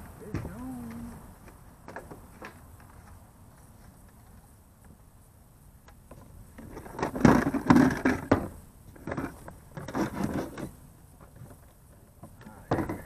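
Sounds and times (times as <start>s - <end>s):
hard plastic knocking and scraping: 12.2s - 13.0s.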